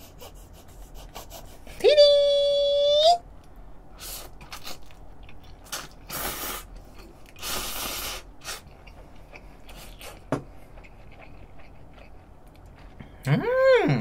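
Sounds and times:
person slurping noodles: 5.7s - 6.7s, 7.4s - 8.7s.

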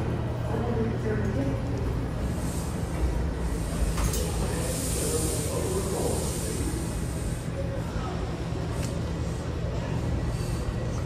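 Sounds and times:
subway train rumbling: 0.0s - 11.0s
high hiss: 2.3s - 7.6s.

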